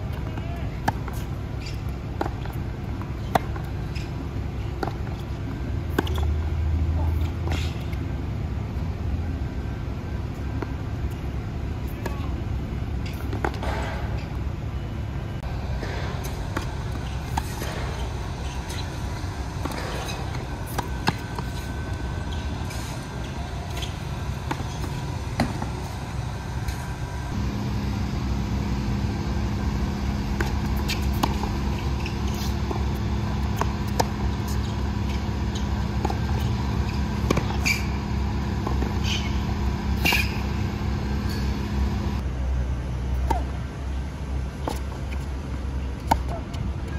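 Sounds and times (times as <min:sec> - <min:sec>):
tennis balls struck by rackets: 0:05.9 - 0:06.3, 0:15.6 - 0:27.5, 0:28.3 - 0:42.2, 0:46.0 - 0:46.4
low hum: 0:14.2 - 0:42.2.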